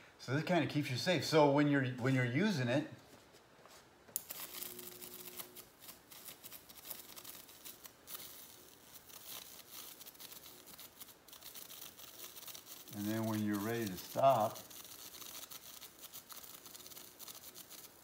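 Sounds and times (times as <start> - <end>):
pen sparking faint crackle: 4.2 - 18.0.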